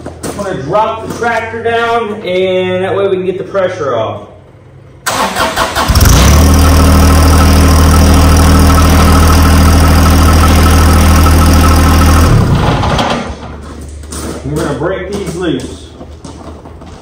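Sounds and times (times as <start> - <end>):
diesel tractor engine idling: 5.0 - 13.6.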